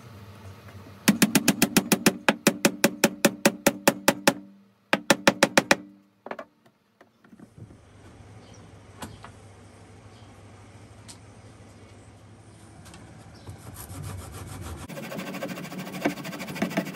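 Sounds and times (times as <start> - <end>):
hammer tapping peg into wood: 1.1 - 6.5.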